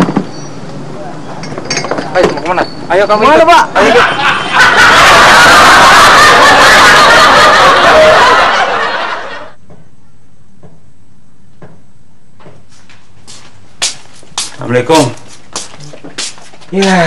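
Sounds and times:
audience laughter: 3.8 - 9.6.

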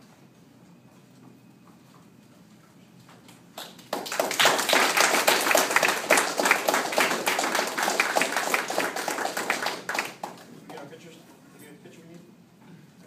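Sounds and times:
group applauding: 3.5 - 11.0.

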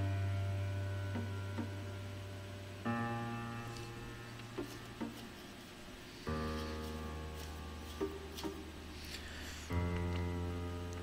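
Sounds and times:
sustained low music notes: 0.0 - 5.2.

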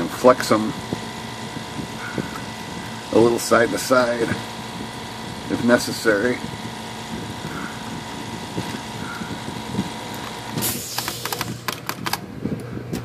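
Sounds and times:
steady machine hum: 0.0 - 13.0
typewriter typebars clicking: 10.9 - 12.2.

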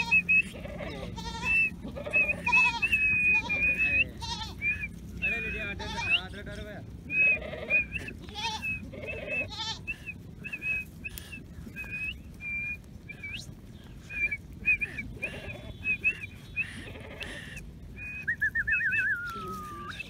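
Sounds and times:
sheep bleating: 0.0 - 10.8, 14.1 - 17.6.

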